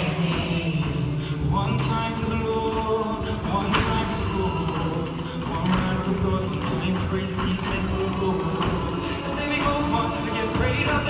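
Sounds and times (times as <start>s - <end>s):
choir singing sustained chords: 7.7s - 11.0s.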